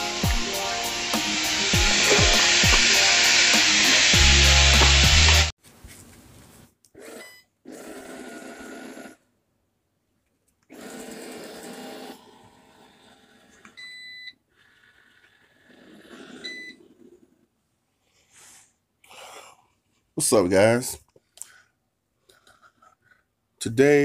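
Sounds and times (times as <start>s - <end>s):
robot vacuum whirring on carpet: 0.0s - 5.5s.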